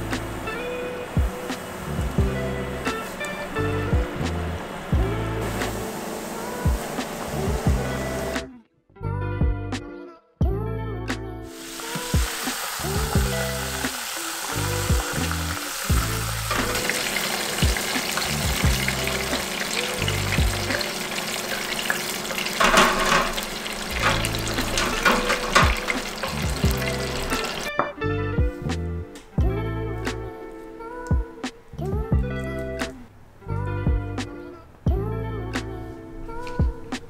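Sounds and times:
background music: 0.0s - 37.0s
food deep-frying in oil: 11.5s - 27.7s.

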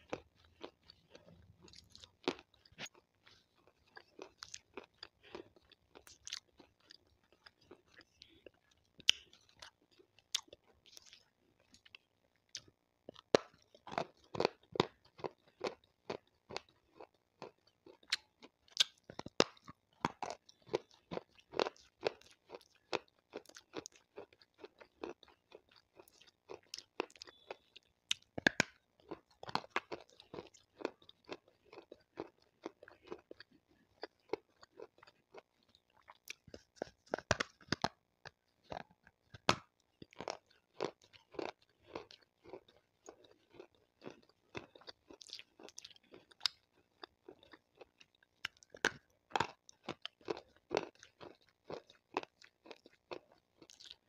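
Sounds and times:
stone crunching between teeth: 12.6s - 54.0s.

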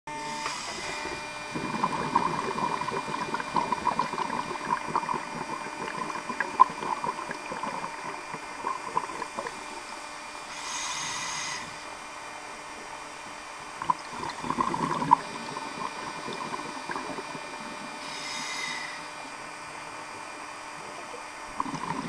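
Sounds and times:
regulator inhalation hiss: 0.3s - 4.1s, 10.4s - 12.0s, 16.2s - 19.3s
exhaled air bubbles underwater: 0.6s - 10.1s, 13.7s - 19.6s, 20.7s - 22.0s.

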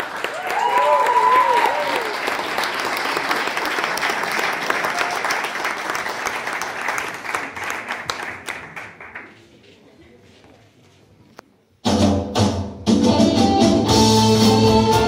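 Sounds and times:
audience applauding: 0.0s - 9.5s.

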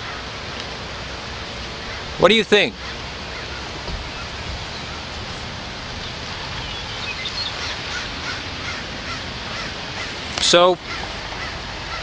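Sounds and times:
outdoor background hiss: 0.0s - 12.0s
faint high bird chirps: 6.0s - 8.1s.

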